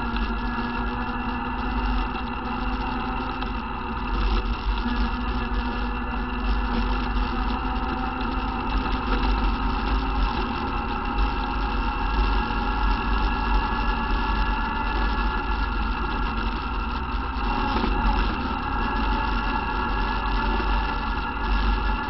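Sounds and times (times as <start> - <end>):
atv engine running: 0.0 - 22.0
low rumble: 0.0 - 22.0.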